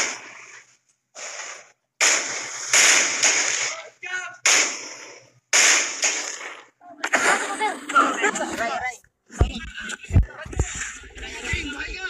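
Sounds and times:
rifle shots echoing: 0:00.0 - 0:00.5, 0:01.2 - 0:07.4.

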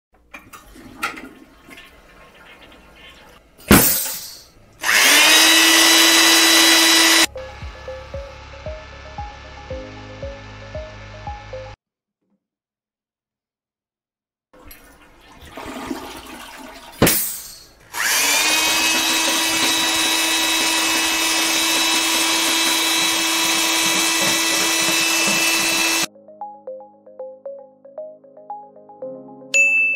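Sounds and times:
power drill whining: 0:04.8 - 0:09.5, 0:17.9 - 0:26.1.

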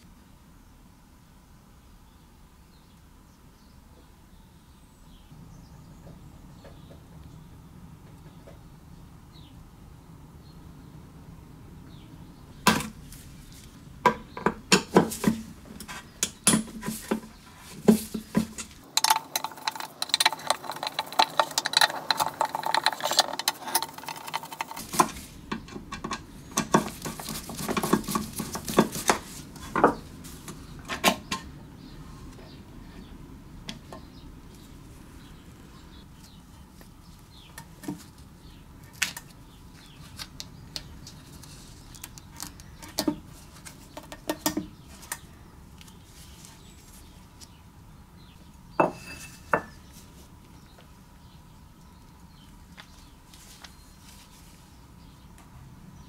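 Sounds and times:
small metal parts clinking: 0:18.6 - 0:25.3.

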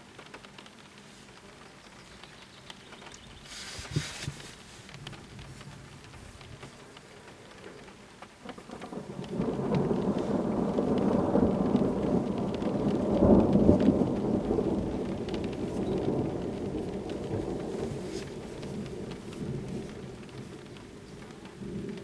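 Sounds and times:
thunder rumbling: 0:03.0 - 0:22.0.

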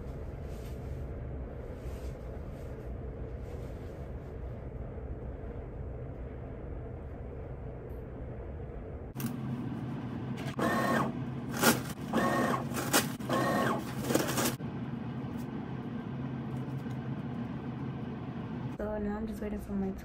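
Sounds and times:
paper towel dispenser motor whirring: 0:09.2 - 0:18.8
paper rustling: 0:11.5 - 0:14.6.

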